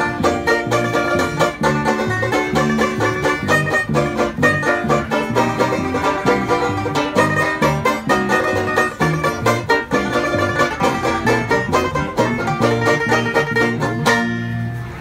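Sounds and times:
banjos picking fast rolls: 0.0s - 15.0s
plucked upright bass: 0.0s - 15.0s.

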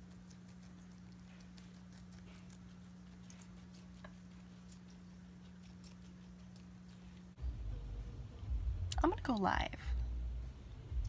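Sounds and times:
guinea pig chewing clicks: 0.0s - 7.4s
steady low hum: 0.0s - 11.0s.

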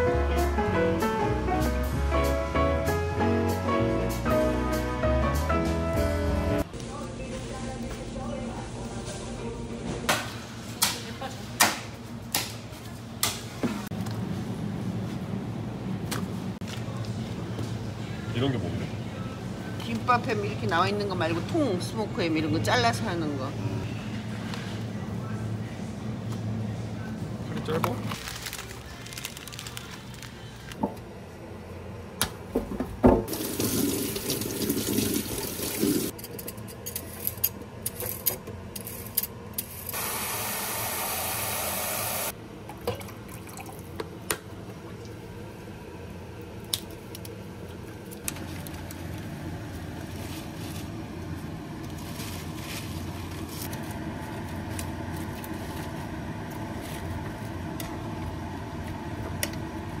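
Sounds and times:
tap water running into steel bowl: 33.3s - 36.1s.

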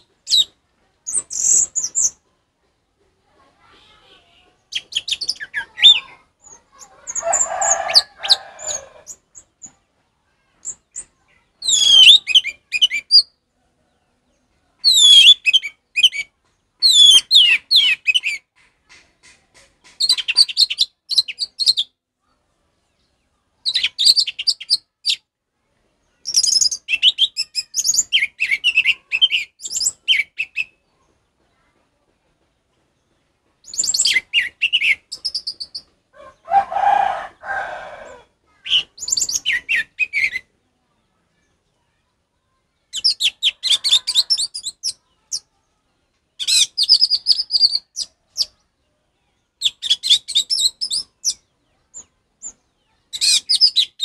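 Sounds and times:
thrush singing whistled phrases: 11.6s - 13.3s, 14.9s - 16.2s, 16.9s - 18.3s.

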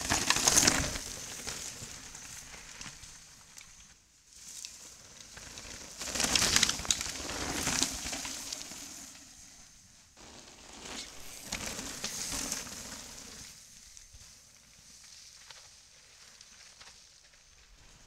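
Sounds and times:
bike clicks and rattles: 0.0s - 3.9s, 4.5s - 9.0s
mountain bikes passing: 0.0s - 18.0s.

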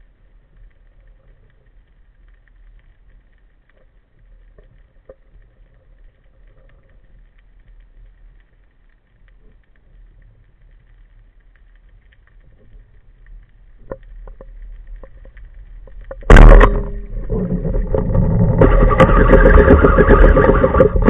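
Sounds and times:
faint clicks and crackles: 0.0s - 21.0s
low underwater rumble: 0.0s - 21.0s.

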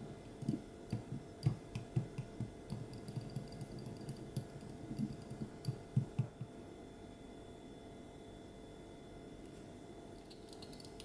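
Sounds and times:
whisk clicking against glass bowl: 0.4s - 6.3s.

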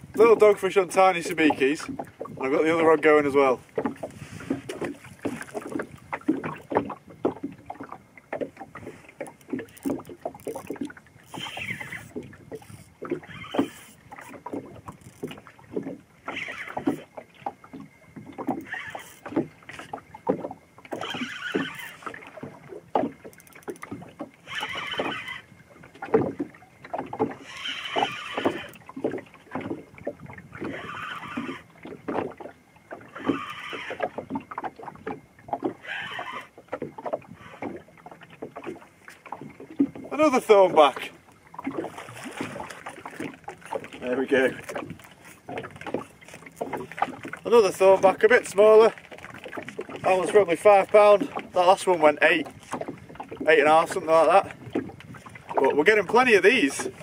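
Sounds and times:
water slapping boat hull: 0.0s - 57.0s
fishing reel whirring: 9.2s - 15.4s, 16.2s - 17.1s, 18.4s - 19.9s, 20.9s - 22.4s, 23.2s - 25.6s, 27.3s - 28.8s, 30.5s - 31.7s, 33.1s - 34.3s, 35.7s - 36.6s.

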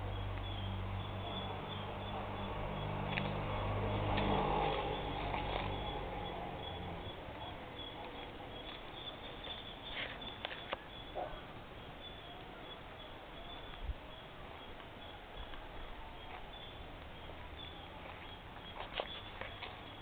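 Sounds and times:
high bird chirps: 4.7s - 15.6s.

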